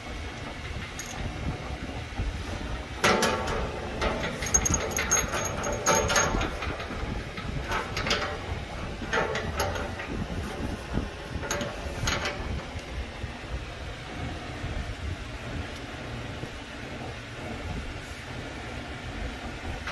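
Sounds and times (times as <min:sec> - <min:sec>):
low background rumble: 0:00.0 - 0:19.9
metal fittings clicking and scraping: 0:03.0 - 0:12.9.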